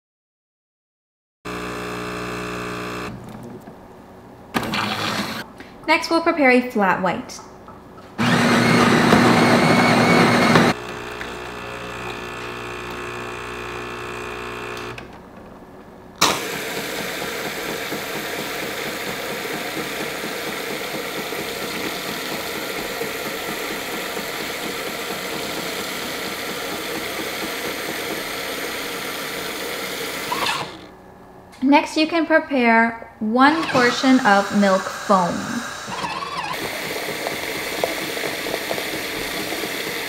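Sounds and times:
coffee grinder whirring: 1.5 - 3.1, 4.6 - 5.5, 8.2 - 15.0, 16.2 - 30.9, 33.5 - 40.0
espresso machine humming: 1.5 - 3.1, 8.2 - 15.0, 16.2 - 30.9, 33.6 - 40.0
milk frother hissing: 8.2 - 13.4, 16.2 - 30.9, 33.5 - 40.0.

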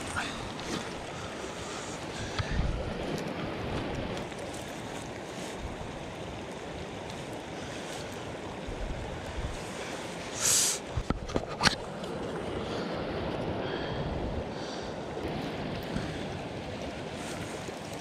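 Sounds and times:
lapping lake water: 0.0 - 18.0
wind: 0.0 - 18.0
wind buffeting microphone: 2.0 - 4.4, 8.3 - 9.7
brief hiss: 10.4 - 10.8.

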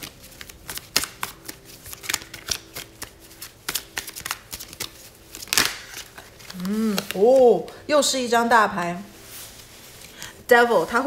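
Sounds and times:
cards being shuffled: 0.0 - 7.8.

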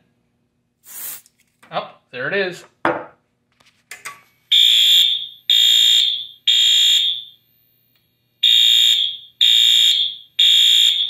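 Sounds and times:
fire alarm horn blasts: 4.5 - 7.4, 8.4 - 11.0.

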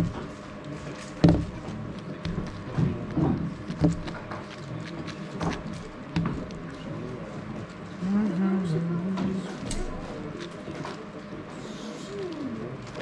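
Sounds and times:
cube knock: 1.2 - 4.4.

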